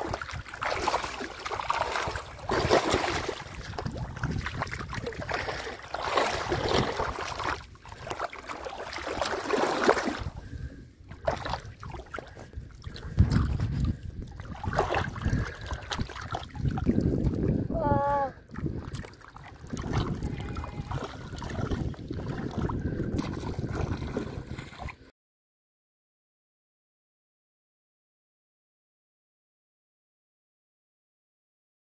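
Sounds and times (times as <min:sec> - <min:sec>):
muddy water splashing: 0:00.0 - 0:25.1.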